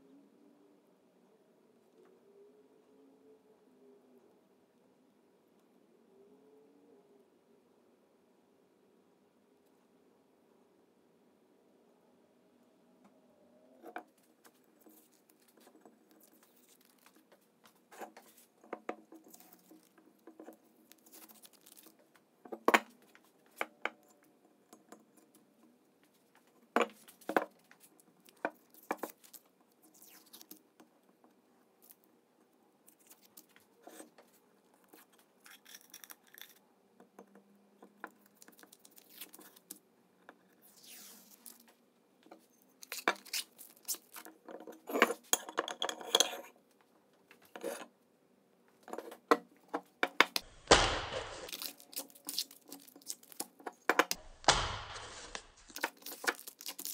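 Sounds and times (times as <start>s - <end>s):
tape peeling and tearing: 20.9s - 22.0s, 42.8s - 44.3s, 50.7s - 53.6s, 54.4s - 56.9s.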